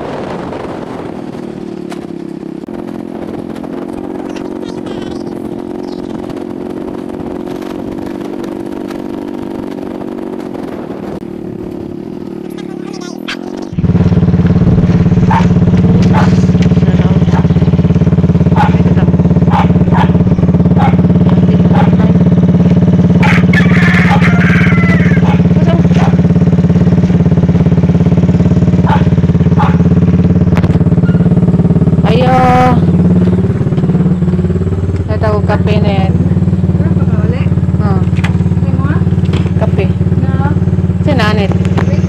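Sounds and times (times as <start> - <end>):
engine drone: 0.0 - 42.0
rising and falling call: 23.2 - 25.6.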